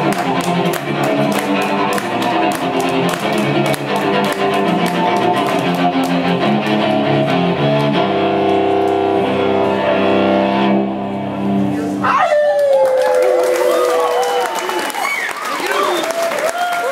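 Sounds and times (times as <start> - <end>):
bowed cello: 0.0 - 11.7.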